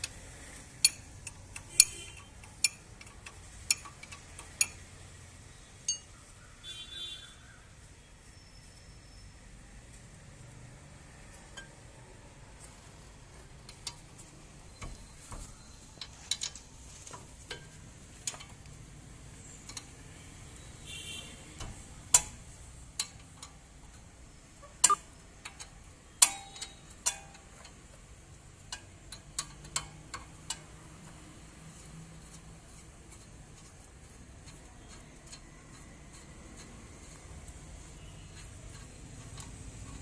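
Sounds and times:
hand tools clinking on metal: 0:24.8 - 0:27.8.

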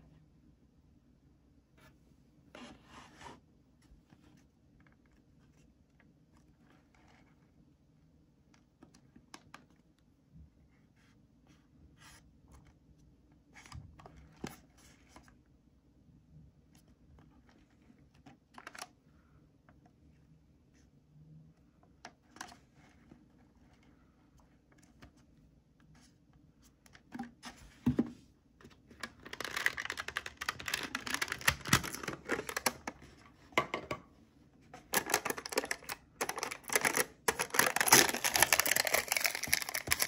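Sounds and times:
low room hum: 0:00.0 - 0:40.0
cardboard box clicks and rustles: 0:35.0 - 0:40.0.

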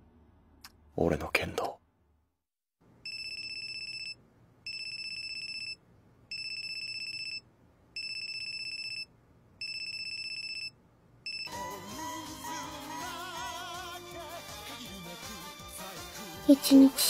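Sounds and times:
telephone electronic trilling ring: 0:03.1 - 0:07.4.

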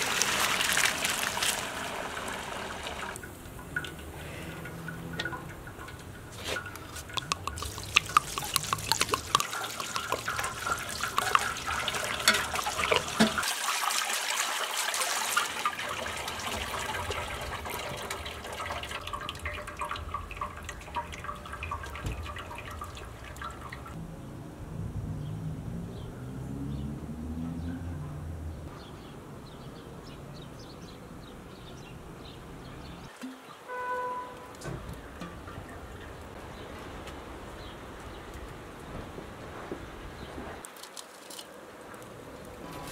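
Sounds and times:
water dripping and trickling: 0:00.0 - 0:24.0, 0:32.8 - 0:42.9
metal spoon clicking on pan: 0:07.2 - 0:11.6.

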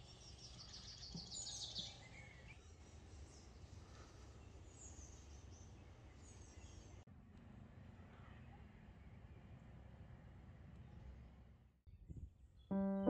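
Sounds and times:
faint birdsong chirps: 0:00.0 - 0:07.1.

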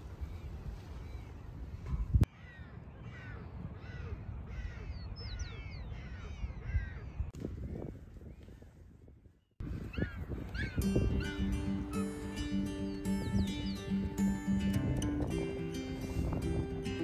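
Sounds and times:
wind buffeting microphone: 0:00.0 - 0:17.0
penguins calling: 0:10.0 - 0:13.9.

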